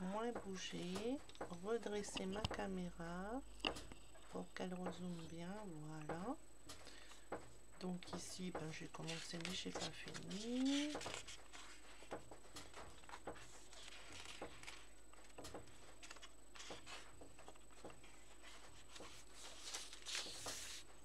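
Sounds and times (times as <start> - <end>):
paper pages turning: 8.2 - 21.0.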